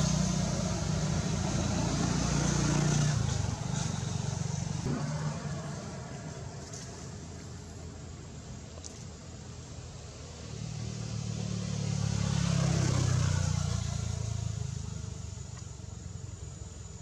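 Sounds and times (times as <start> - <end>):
vehicle passing by: 0.0 - 7.4, 9.9 - 15.5.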